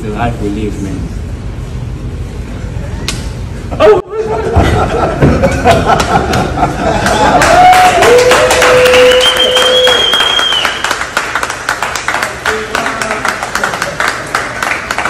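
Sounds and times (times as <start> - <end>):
people clapping: 5.6 - 15.0
long held cheer: 6.8 - 11.0.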